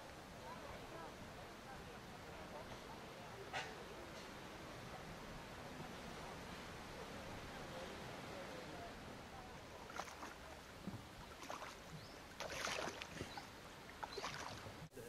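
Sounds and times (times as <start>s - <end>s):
paddle splashes and drips: 9.0s - 14.9s.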